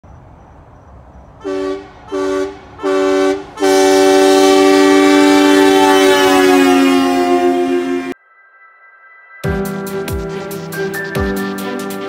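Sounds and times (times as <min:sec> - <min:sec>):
two-tone vehicle horn: 0:01.4 - 0:08.2.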